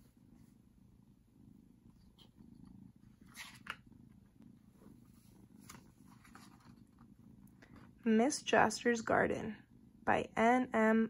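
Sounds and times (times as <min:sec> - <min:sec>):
cat purring: 0:00.0 - 0:11.0
book page turning: 0:03.3 - 0:03.8.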